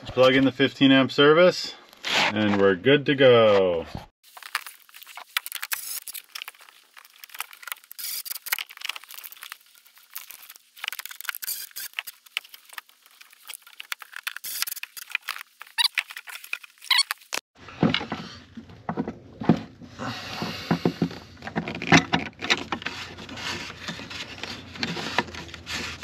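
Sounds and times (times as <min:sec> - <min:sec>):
clicks and scrapes of wires: 0:04.5 - 0:17.4, 0:21.4 - 0:26.0.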